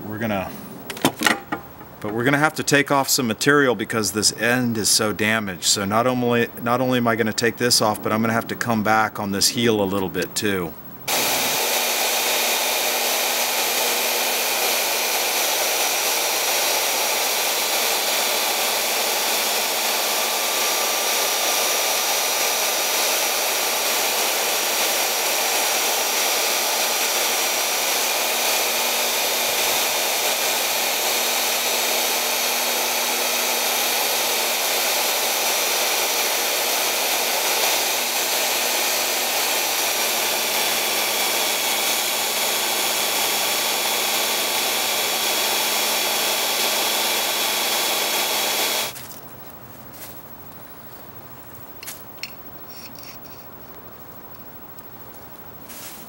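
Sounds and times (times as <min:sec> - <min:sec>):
belt sander grinding steel: 0:11.1 - 0:49.0.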